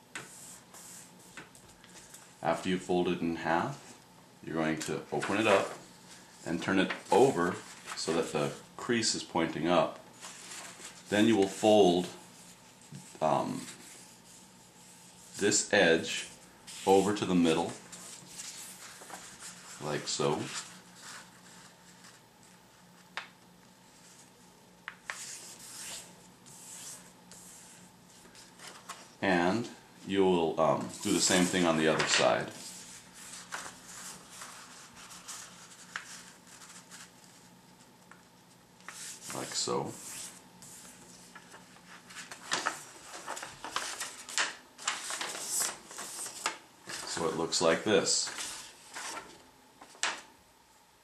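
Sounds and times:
paper rubbed on wooden table: 0:00.2 - 0:01.4, 0:25.1 - 0:28.2, 0:30.9 - 0:37.4, 0:38.9 - 0:47.1
paper rustling and crinkling: 0:04.8 - 0:08.6, 0:10.1 - 0:14.3, 0:16.7 - 0:23.3, 0:25.0 - 0:29.1, 0:30.8 - 0:37.5, 0:38.8 - 0:50.3.

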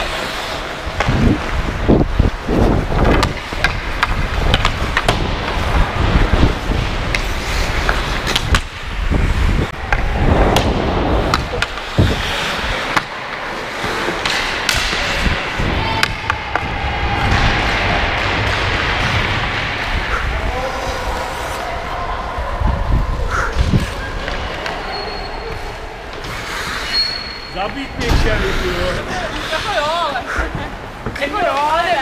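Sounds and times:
skates scraping on ice: 0:00.0 - 0:22.0, 0:23.2 - 0:32.0
low wind rumble: 0:00.0 - 0:26.6
hockey stick clicking on puck: 0:07.1 - 0:08.8.

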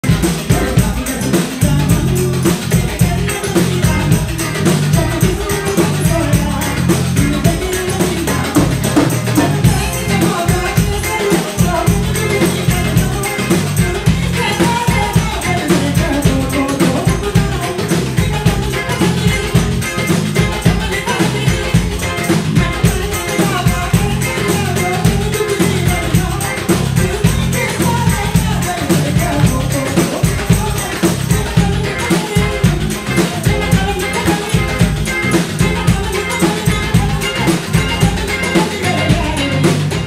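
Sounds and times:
drums and hand percussion: 0:00.0 - 0:40.0
guitar: 0:00.0 - 0:40.0
woman singing into microphone: 0:00.1 - 0:40.0.

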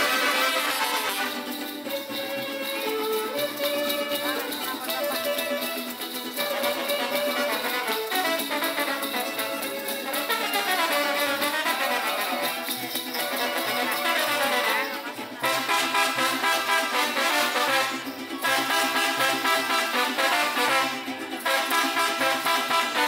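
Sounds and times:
traditional folk music ensemble: 0:00.0 - 0:23.0.

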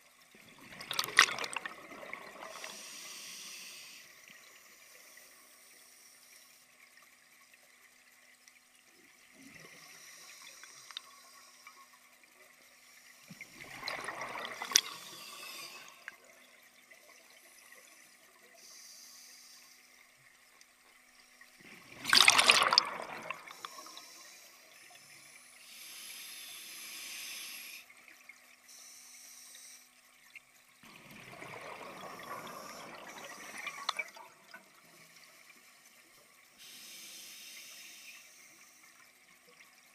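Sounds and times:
gurgling bursts of exhaled bubbles: 0:00.5 - 0:02.8, 0:13.4 - 0:16.4, 0:21.6 - 0:24.0, 0:30.8 - 0:34.6
faint regulator hiss: 0:01.5 - 0:21.8, 0:23.0 - 0:30.8, 0:31.6 - 0:39.9.

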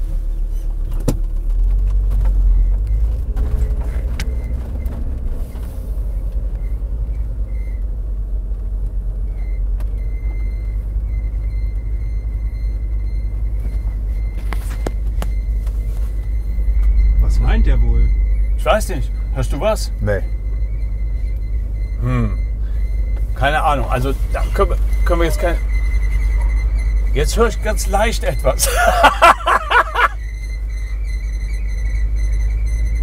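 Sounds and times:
engine and road rumble: 0:00.0 - 0:33.0
faint high whine: 0:13.7 - 0:33.0.

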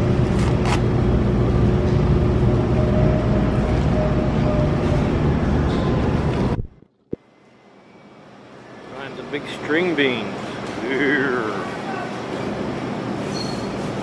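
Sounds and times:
grocery store background rumble: 0:00.0 - 0:07.4, 0:08.4 - 0:14.0.

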